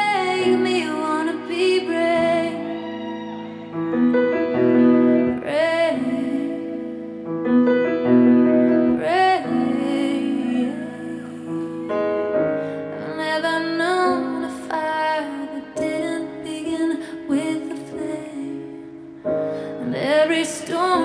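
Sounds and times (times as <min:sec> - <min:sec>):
woman singing: 0:00.0 - 0:04.2, 0:05.1 - 0:07.2, 0:08.7 - 0:12.2, 0:12.9 - 0:19.0, 0:19.6 - 0:21.0
piano accompaniment: 0:00.0 - 0:21.0.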